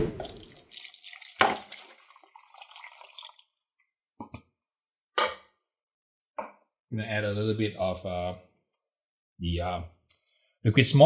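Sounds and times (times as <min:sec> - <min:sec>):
broth pouring and splashing: 0:00.1 - 0:03.7.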